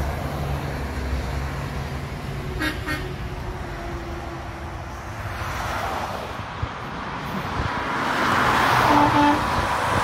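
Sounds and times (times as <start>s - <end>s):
highway traffic: 0.0s - 10.0s
truck air horn toots: 2.5s - 3.2s, 8.8s - 9.5s.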